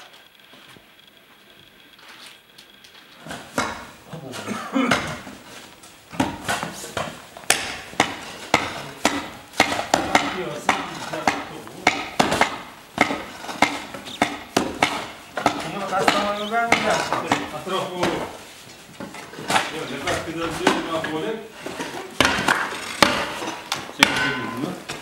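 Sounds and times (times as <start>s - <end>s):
hard rhythmic strikes: 7.5s - 18.3s, 22.2s - 25.0s.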